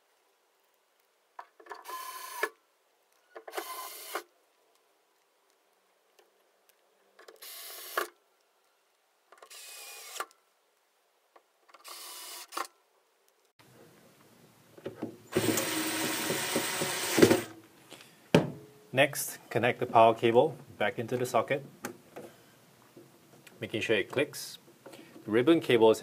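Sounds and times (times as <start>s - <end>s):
cordless drill driving screws: 3.4s - 4.3s, 7.4s - 8.1s, 9.4s - 10.3s, 11.8s - 12.7s, 15.3s - 17.5s.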